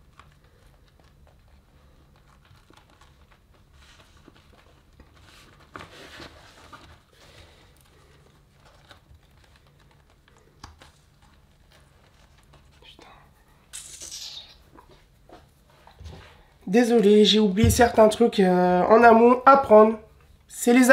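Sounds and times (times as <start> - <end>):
vinyl crinkling and rustling: 0.0 - 13.4.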